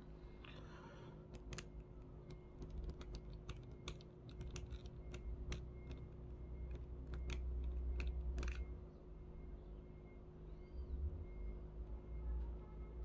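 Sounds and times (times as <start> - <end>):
small reel parts clicking: 1.2 - 8.8.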